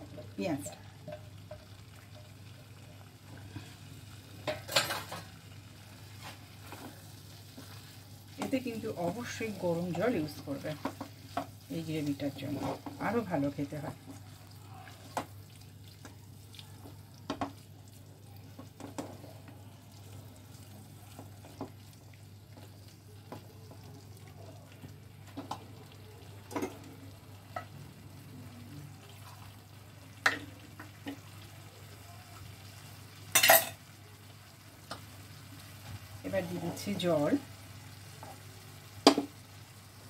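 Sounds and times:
food sizzling in a pan: 0.0 - 40.0
spatula scraping a pan: 10.7 - 13.3.

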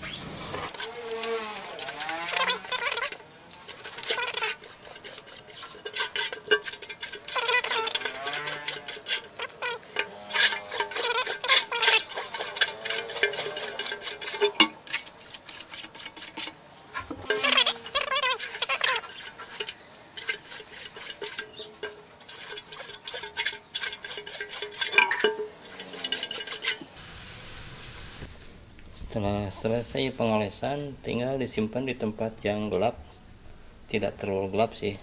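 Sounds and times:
plastic card scraping on mesh: 0.6 - 5.8.

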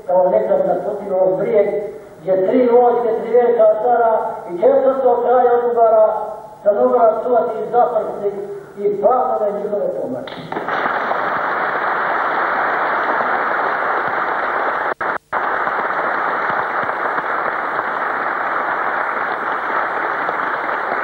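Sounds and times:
audience applauding: 10.5 - 21.0.

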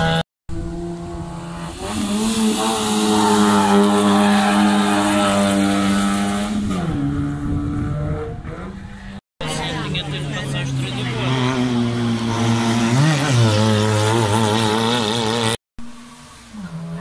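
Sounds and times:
rally car engine accelerating: 0.0 - 15.6.

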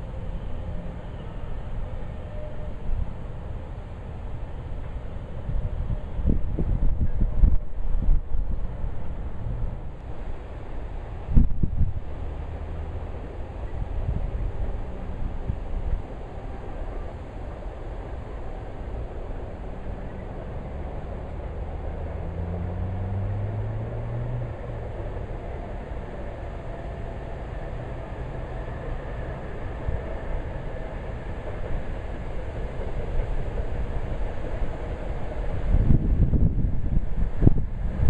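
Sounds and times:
distant engine drone: 0.0 - 38.0
wind buffeting microphone: 4.8 - 19.8, 21.1 - 38.0.

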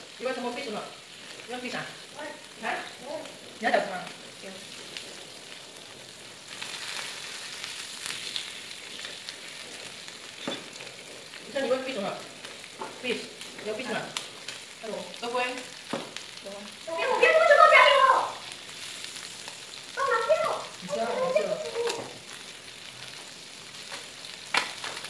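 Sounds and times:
food sizzling on a grill plate: 0.0 - 25.0
voices: 0.2 - 4.8, 11.4 - 14.2, 16.4 - 18.6, 19.9 - 22.2.

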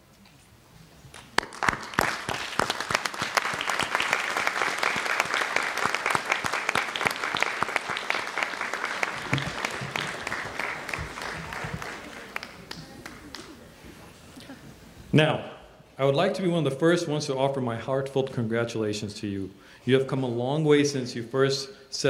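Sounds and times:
crowd applauding: 1.1 - 13.8.

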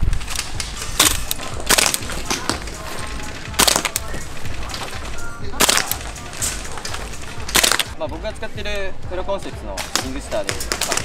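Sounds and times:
background music with bass: 0.0 - 11.0
airsoft rifle shots: 1.0 - 4.8, 5.5 - 8.0.

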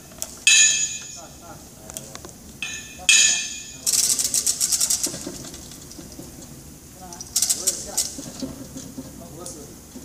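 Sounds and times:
metal tools clinking: 0.5 - 1.4, 2.6 - 6.2.

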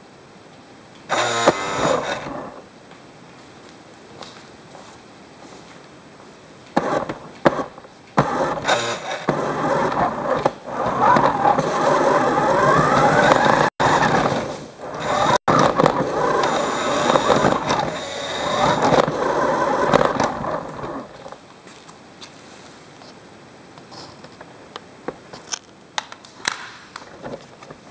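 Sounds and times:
toy car electric motor whining: 1.1 - 2.6, 6.8 - 21.4
toy car wheels rolling on floor: 1.1 - 2.6, 6.8 - 21.4.

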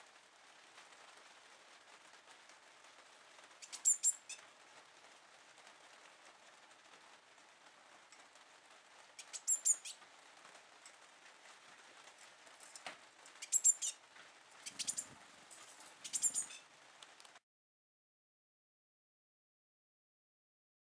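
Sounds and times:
young bird chirping: 3.6 - 4.4, 9.2 - 10.0, 13.4 - 14.0, 14.6 - 15.2, 16.0 - 16.6.

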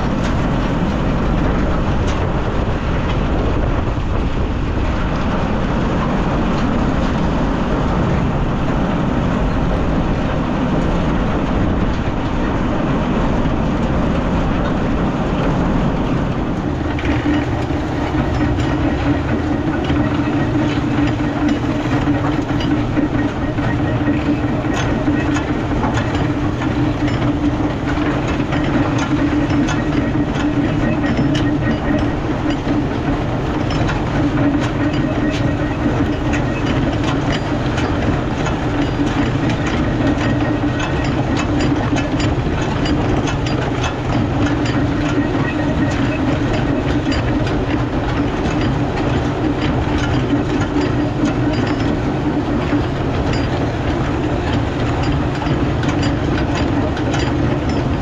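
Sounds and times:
tractor engine running: 0.0 - 58.0
clattering chain clicks and clanks: 16.5 - 58.0.

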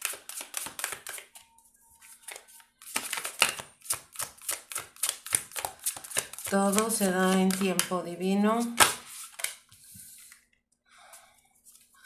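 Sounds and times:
cards being shuffled: 0.0 - 1.4, 2.2 - 7.9, 8.6 - 9.6.

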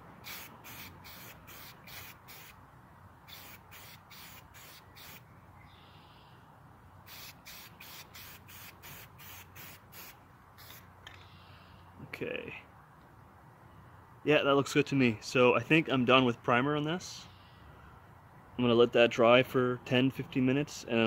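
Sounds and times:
aerosol spray can hissing: 0.2 - 2.6, 3.3 - 5.2, 7.1 - 10.8.

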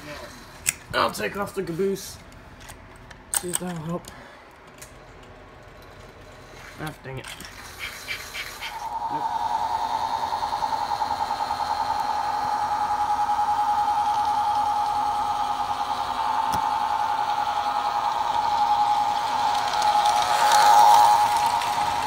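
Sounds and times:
toy train motor whine: 6.2 - 22.0.

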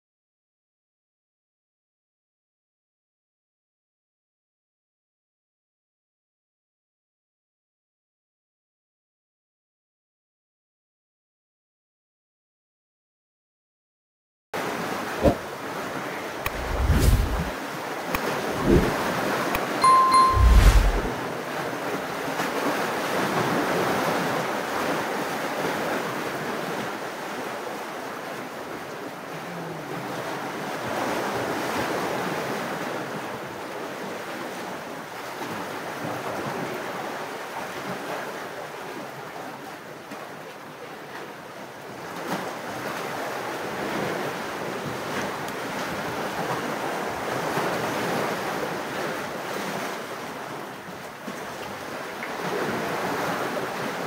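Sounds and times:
sea waves rushing: 14.6 - 21.1
wind buffeting microphone: 16.5 - 17.5.

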